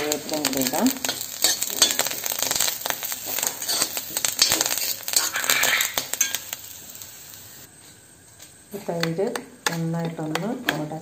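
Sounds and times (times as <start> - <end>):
food sizzling in hot oil: 0.0 - 11.0
spatula scraping a wok: 0.6 - 6.6.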